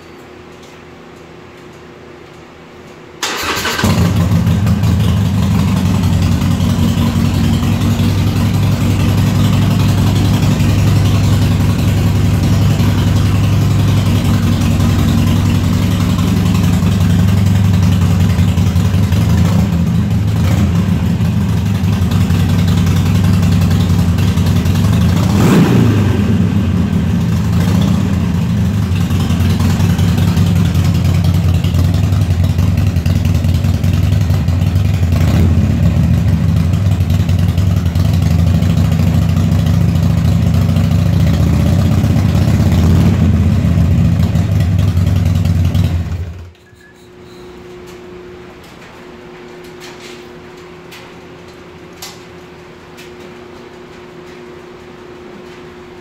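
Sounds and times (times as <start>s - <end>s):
motorcycle engine idling: 3.4s - 46.6s.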